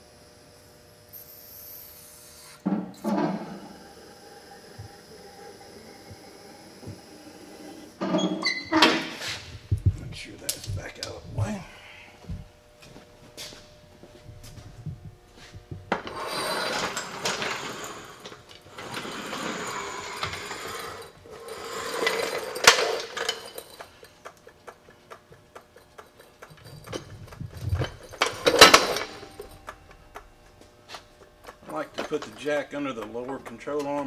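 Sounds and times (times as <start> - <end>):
floor jack rolling on concrete: 15.4 - 34.0
jack clicks and knocks: 22.0 - 34.0.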